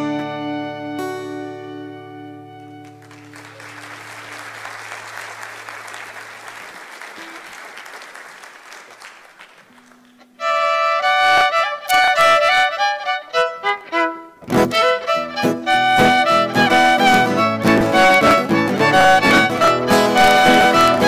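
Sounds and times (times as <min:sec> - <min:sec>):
fiddle and acoustic guitar tune: 0:00.0 - 0:04.0, 0:10.2 - 0:21.0
audience applause: 0:02.8 - 0:10.4, 0:16.6 - 0:21.0
fast solo fiddle tune: 0:10.4 - 0:21.0.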